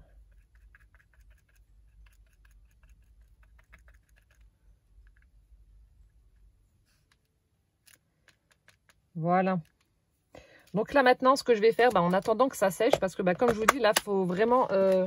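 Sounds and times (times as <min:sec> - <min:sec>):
faint low hum: 0:00.0 - 0:15.0.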